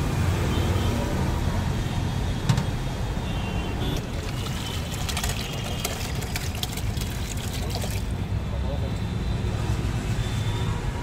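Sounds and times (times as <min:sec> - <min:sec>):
road traffic rumble: 0:00.0 - 0:11.0
thick liquid pouring into a pot: 0:04.0 - 0:08.2.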